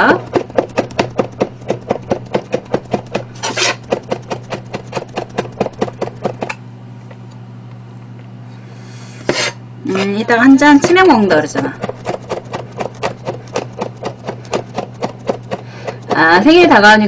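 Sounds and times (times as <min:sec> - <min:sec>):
knife chopping on cutting board: 0:00.0 - 0:06.6, 0:10.7 - 0:16.7.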